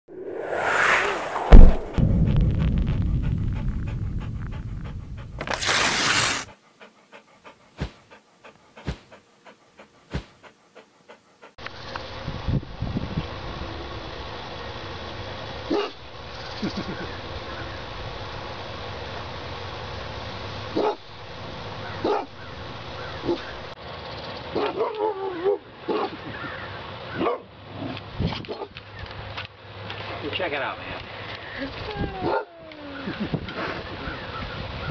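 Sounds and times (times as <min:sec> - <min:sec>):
loud low rumble: 0:00.0 - 0:05.4
bright whoosh: 0:00.1 - 0:02.2
dog panting: 0:06.4 - 0:11.6
dogs barking and yipping: 0:21.8 - 0:23.6.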